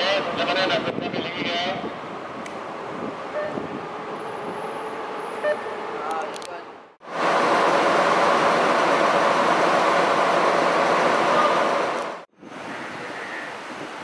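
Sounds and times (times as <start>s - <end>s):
diesel locomotive engine running: 7.0s - 12.3s
windy hiss: 7.2s - 14.0s.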